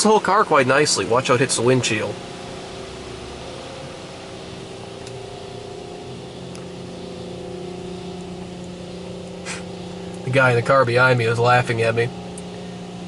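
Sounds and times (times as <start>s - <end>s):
car wash motors humming: 0.0s - 13.0s
deeper machine tone: 0.0s - 13.0s
water spray hissing: 9.4s - 9.7s.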